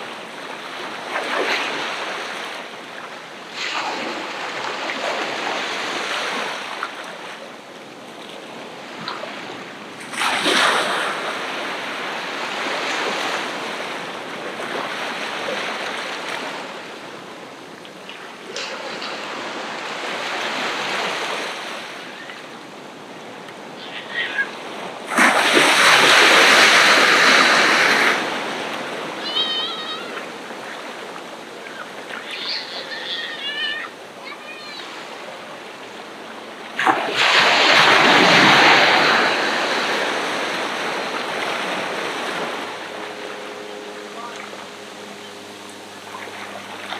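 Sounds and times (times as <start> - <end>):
ocean surf washing onto beach: 0.0 - 46.9
short high calls: 29.2 - 30.3, 31.7 - 33.9.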